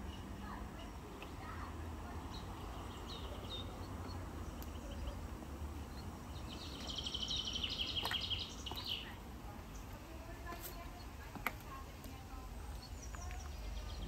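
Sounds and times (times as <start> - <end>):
songbirds chirping: 0.0 - 14.0
bird trill: 5.8 - 9.9.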